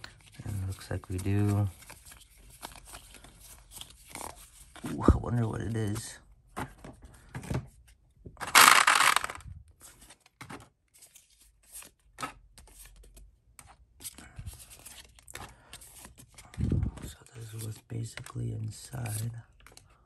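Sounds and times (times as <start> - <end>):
cards clicking and rustling: 0.0 - 5.0, 8.4 - 20.0
plastic packaging rustle: 8.5 - 9.4.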